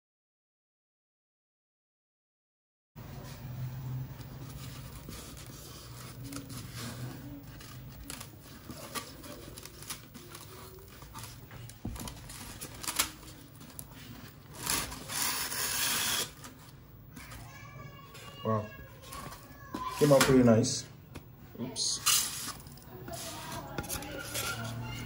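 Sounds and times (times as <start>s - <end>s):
polystyrene foam creaking: 3.9s - 20.4s, 21.9s - 25.0s.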